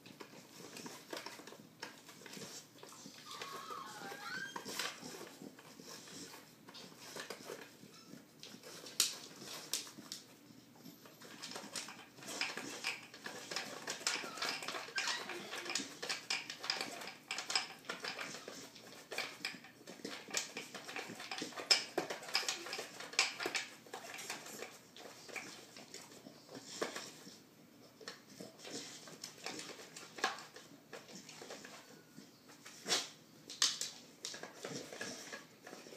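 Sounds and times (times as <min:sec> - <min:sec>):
dog sniffing: 0:00.2 - 0:33.2
plastic toy clicks and knocks: 0:11.3 - 0:24.7.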